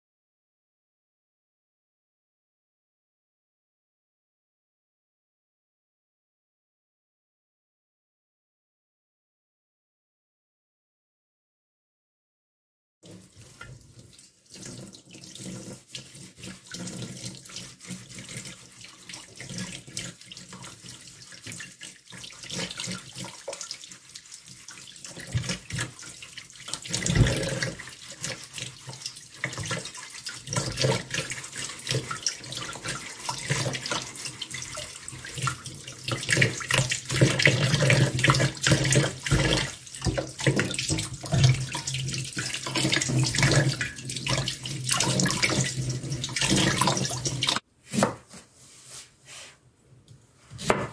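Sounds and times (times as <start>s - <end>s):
tap water splashing into colander: 13.0s - 47.6s
cucumber being scrubbed: 14.5s - 49.6s.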